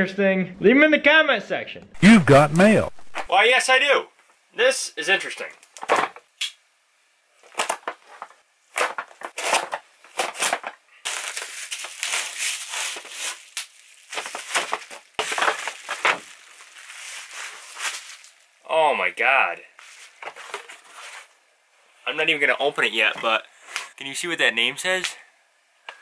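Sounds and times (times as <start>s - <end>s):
bubble wrap crinkling: 2.0s - 3.3s, 7.4s - 18.6s, 19.8s - 21.3s
cardboard box tearing: 8.8s - 18.3s.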